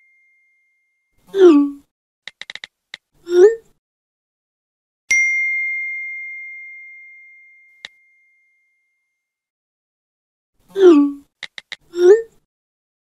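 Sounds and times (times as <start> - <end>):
person saying ooh: 1.3 - 1.8, 10.8 - 11.2.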